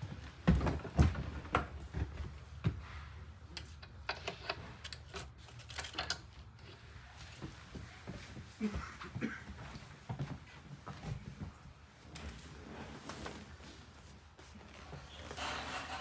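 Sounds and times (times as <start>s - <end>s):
folding chair clicks and knocks: 15.2s - 16.0s.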